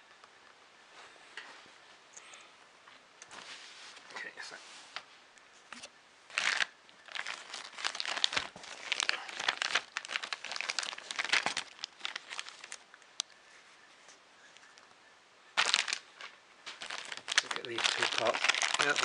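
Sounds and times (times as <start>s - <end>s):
plastic bag crinkling: 6.3s - 13.0s, 15.6s - 19.0s.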